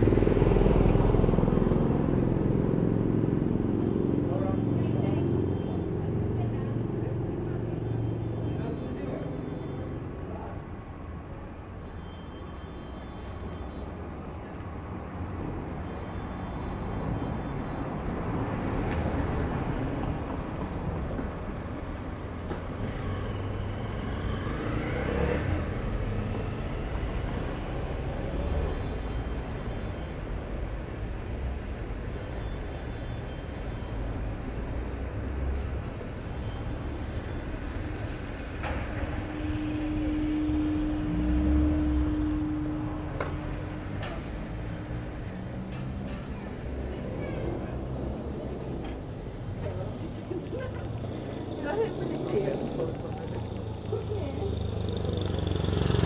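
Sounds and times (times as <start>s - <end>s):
rumble of street traffic: 0.0s - 56.0s
motorcycle passing: 22.8s - 28.4s, 49.7s - 56.0s.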